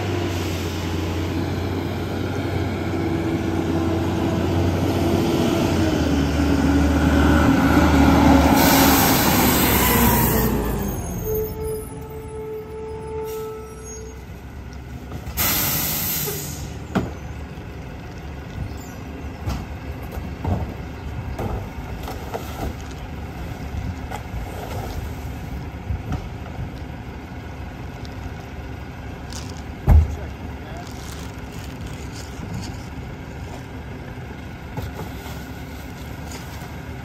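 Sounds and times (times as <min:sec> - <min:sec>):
air hiss: 0:15.4 - 0:16.8.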